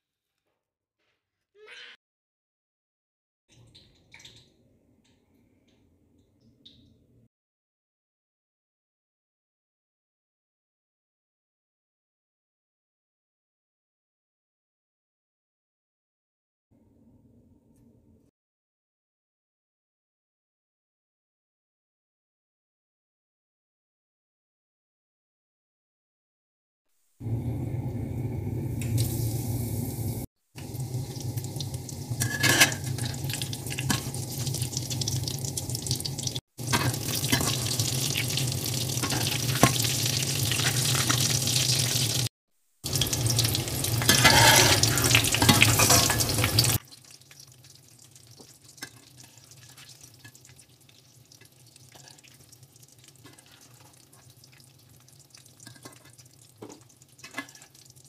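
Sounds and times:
deep-frying sizzling and bubbling: 27.2 - 58.0.

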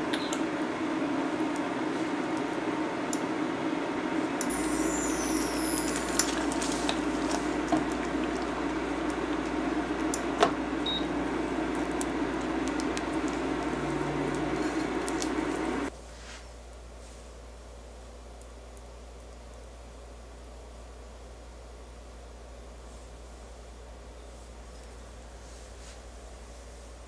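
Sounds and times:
batter sizzling in a saucepan: 4.4 - 10.1.

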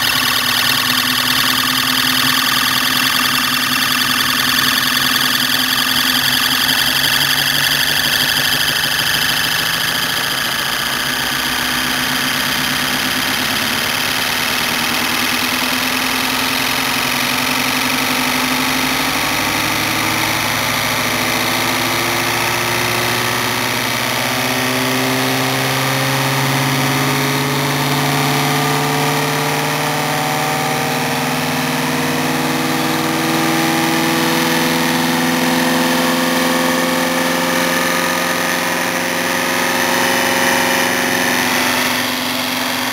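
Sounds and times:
electric motor hum and whine: 0.0 - 42.9.

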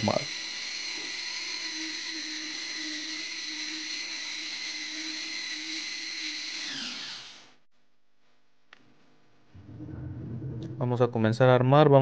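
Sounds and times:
electric belt sander on wood: 0.0 - 7.6.

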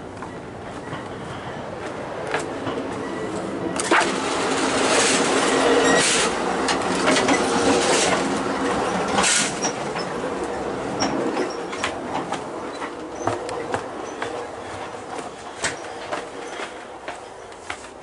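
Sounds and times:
train wheels rushing rattle: 2.4 - 17.8
clunks and knocks: 3.8 - 16.8.

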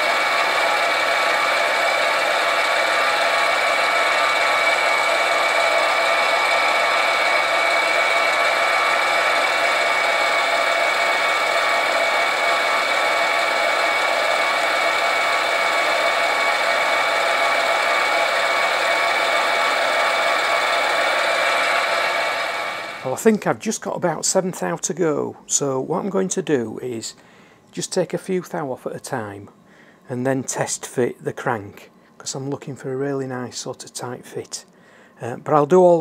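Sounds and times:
metal lathe whining: 0.0 - 23.1.

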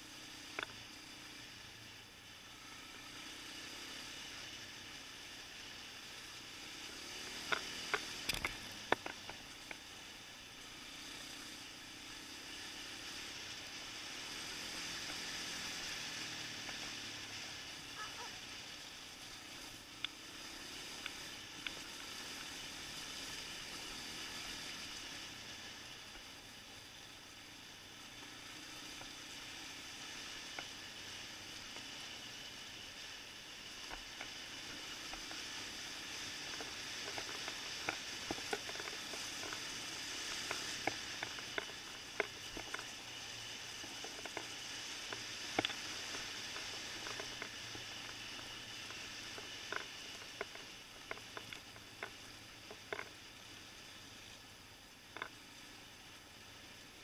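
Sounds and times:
quad engine: 0.0 - 57.0
wind and tyres on gravel: 0.0 - 57.0
sharp clicks and knocks: 7.4 - 9.8, 40.4 - 42.9, 43.8 - 47.6, 49.3 - 53.1.

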